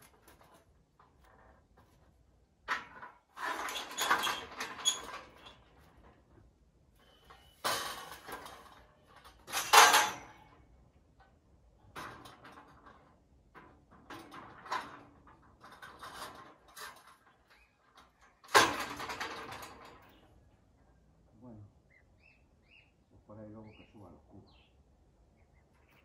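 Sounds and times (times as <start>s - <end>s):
metal scaffolding clanks: 0.0s - 6.3s, 7.0s - 10.6s, 11.2s - 20.2s.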